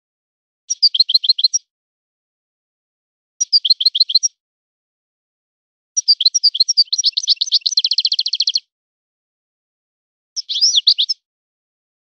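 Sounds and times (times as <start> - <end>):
goldfinch twittering and trilling: 0.7 - 1.6, 3.4 - 4.3, 6.0 - 8.6, 10.4 - 11.2.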